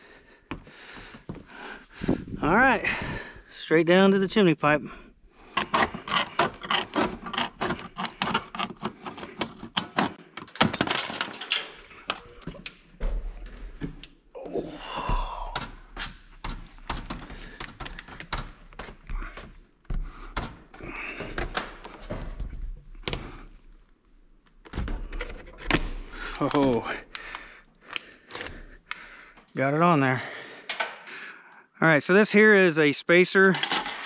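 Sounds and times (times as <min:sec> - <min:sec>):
metal scraping and knocks: 0:05.5 - 0:12.6.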